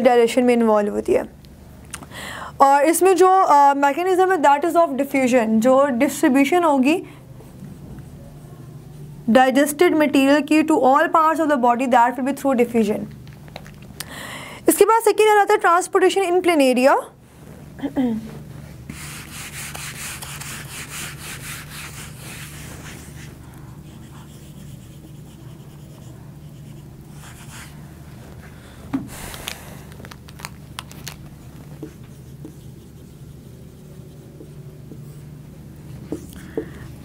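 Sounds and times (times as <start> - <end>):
duster rubbing whiteboard: 18.9 - 27.8.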